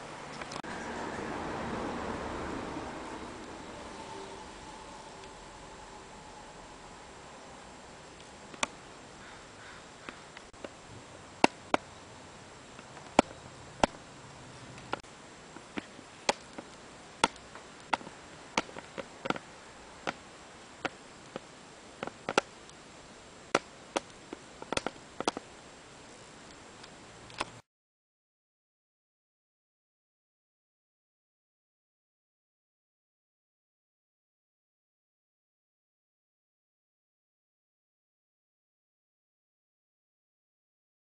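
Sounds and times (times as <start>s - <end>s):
faint steady hiss: 0.0s - 27.6s.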